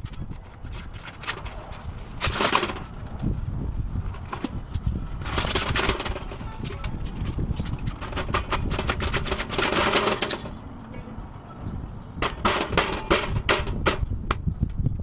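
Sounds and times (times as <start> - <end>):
sharp clicks and knocks: 11.6 - 14.9.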